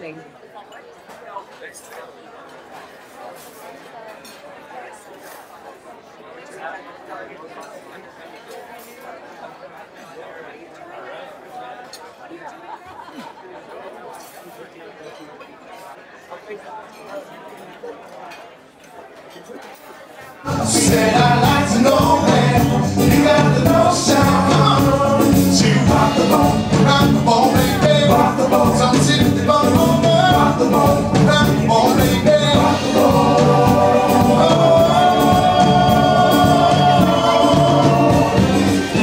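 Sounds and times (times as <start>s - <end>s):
man singing lead vocal: 20.4s - 39.0s
live band playing upbeat song: 20.5s - 39.0s.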